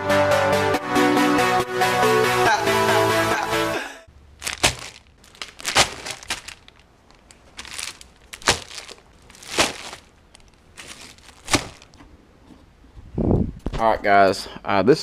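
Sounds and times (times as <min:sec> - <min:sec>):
plastic bags crinkling: 0:04.2 - 0:12.0.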